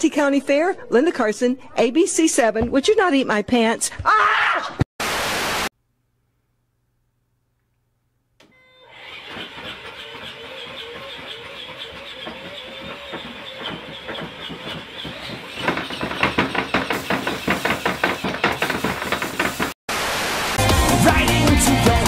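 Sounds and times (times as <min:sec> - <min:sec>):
electric motor whining: 0:08.4 - 0:16.0.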